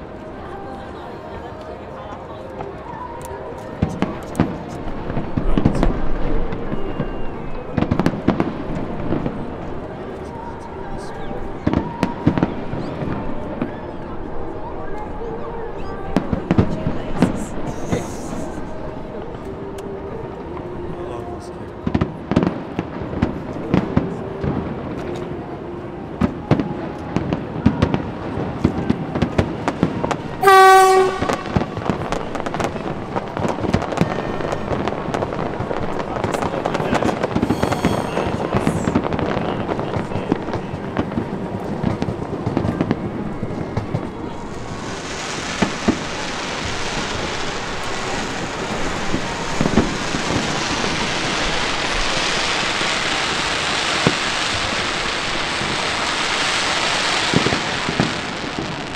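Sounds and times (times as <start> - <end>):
fireworks bangs and crackles: 2.6 - 15.2, 15.8 - 20.8, 21.7 - 58.9
dense steady hiss: 29.5 - 58.9
loud horn blast: 30.4 - 31.8.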